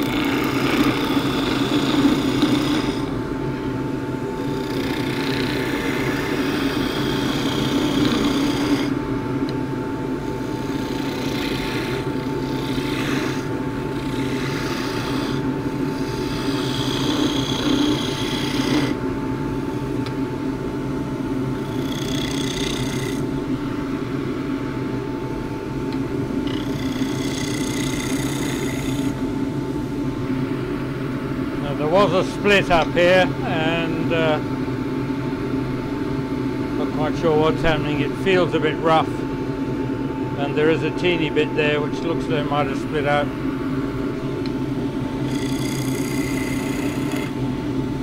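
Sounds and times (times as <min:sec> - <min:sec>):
chisel cutting spinning wood: 0:00.0 - 0:03.2, 0:04.4 - 0:09.0, 0:10.4 - 0:19.0, 0:21.6 - 0:23.3, 0:26.4 - 0:29.2, 0:45.2 - 0:47.4
wood lathe running: 0:00.0 - 0:03.2, 0:04.4 - 0:09.0, 0:10.4 - 0:19.0, 0:21.6 - 0:23.3, 0:26.4 - 0:29.2, 0:45.2 - 0:47.4.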